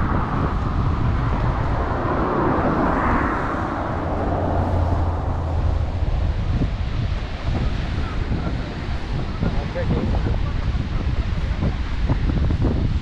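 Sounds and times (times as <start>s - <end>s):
ocean surf: 0.0s - 13.0s
road traffic: 0.0s - 13.0s
wind rumbling on microphone: 0.0s - 13.0s.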